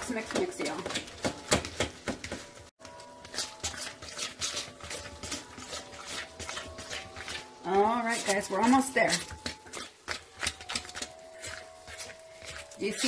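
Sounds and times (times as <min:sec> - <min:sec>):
fork scraping a bowl: 0:03.2 - 0:13.0.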